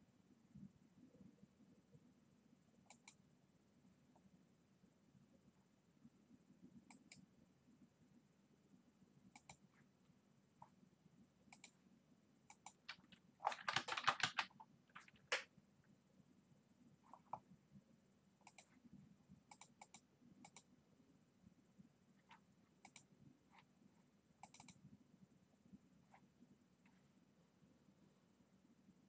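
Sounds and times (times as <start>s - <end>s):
mouse clicks: 2.9s - 3.2s, 6.9s - 7.2s, 9.3s - 9.6s, 11.5s - 11.8s, 12.5s - 14.0s, 18.4s - 18.8s, 19.5s - 20.7s, 22.2s - 23.1s, 24.4s - 24.8s
keyboard typing: 12.5s - 15.5s, 18.4s - 18.8s, 24.4s - 24.8s.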